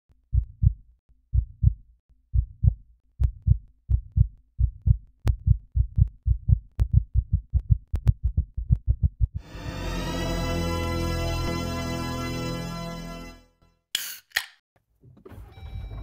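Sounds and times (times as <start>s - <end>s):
heartbeat thumps: 0.3s - 9.4s.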